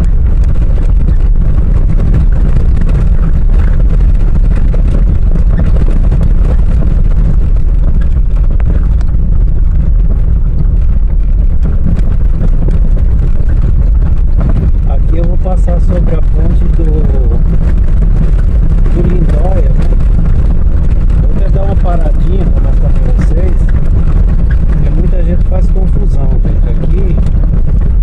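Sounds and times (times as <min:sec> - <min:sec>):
stones ticking under tyres: 0:00.0 - 0:28.0
tyre and wind rumble: 0:00.0 - 0:28.0.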